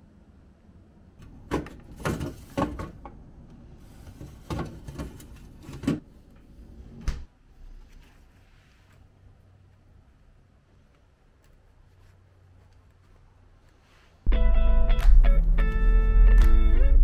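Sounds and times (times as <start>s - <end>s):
plastic ice bin clunks and rattles: 1.4s - 3.1s.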